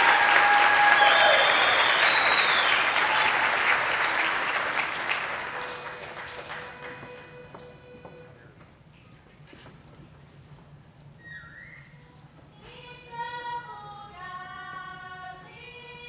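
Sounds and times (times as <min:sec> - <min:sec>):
audience applause: 0:00.0 - 0:07.4.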